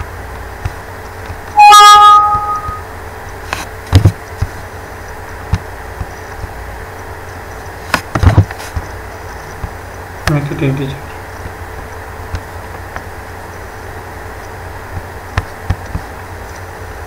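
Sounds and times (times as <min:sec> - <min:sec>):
two-note electronic alert chime: 0:01.6 - 0:02.8.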